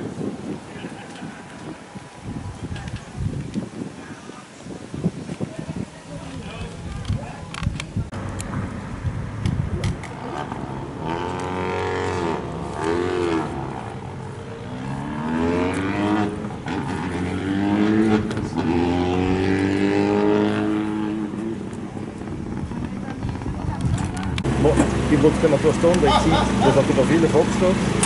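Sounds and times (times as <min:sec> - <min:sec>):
rally car engine revving: 0:08.2 - 0:28.0.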